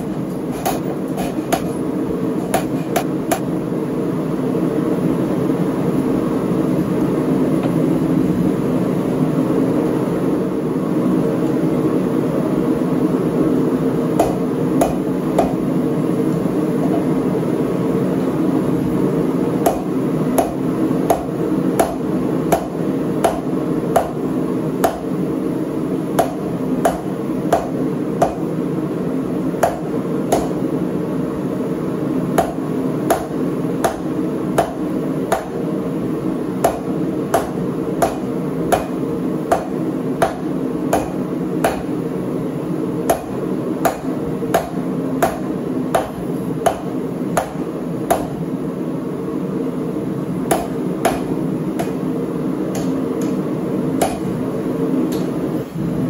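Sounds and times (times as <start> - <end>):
hammer striking hot steel on anvil: 0.3 - 1.8, 2.4 - 3.5, 14.1 - 15.7, 19.6 - 24.2, 24.8 - 25.2, 26.1 - 28.5, 29.6 - 30.7, 32.4 - 35.6, 36.6 - 42.0, 43.0 - 48.5, 50.5 - 52.1, 52.7 - 53.4, 54.0 - 54.4.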